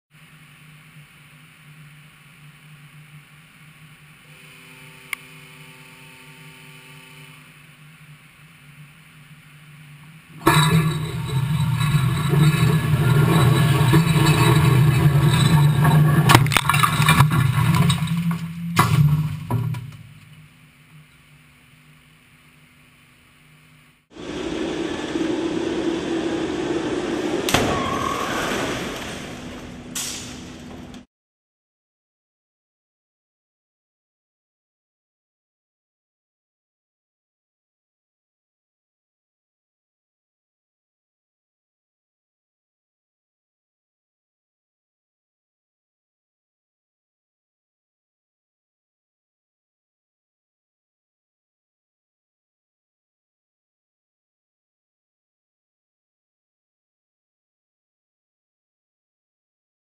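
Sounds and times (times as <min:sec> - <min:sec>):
high steady whine: 0:00.2 - 0:31.0
steady electrical hum: 0:00.2 - 0:31.0
rumble with hum: 0:07.4 - 0:21.1
sharp car crash: 0:10.4 - 0:20.2, 0:26.1 - 0:30.6.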